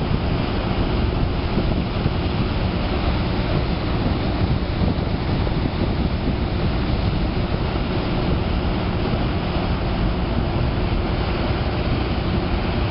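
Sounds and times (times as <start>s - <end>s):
tugboat engines rumbling: 0.0s - 12.9s
water churning: 0.0s - 12.9s
wind buffeting microphone: 0.0s - 12.9s.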